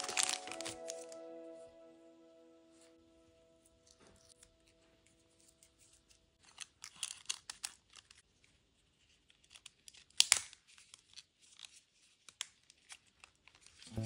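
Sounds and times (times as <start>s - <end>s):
plastic parts scraping and rattling: 5.4s - 8.3s, 9.0s - 13.9s.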